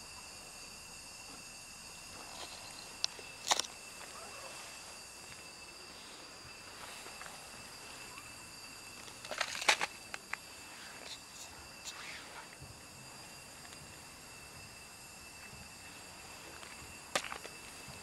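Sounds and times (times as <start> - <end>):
steady high-pitched hum: 0.0 - 18.0
clicks and rustles: 9.0 - 10.4.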